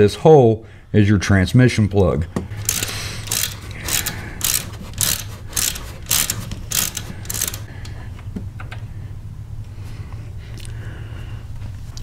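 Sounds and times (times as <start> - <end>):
socket ratchet clicking: 2.6 - 7.7.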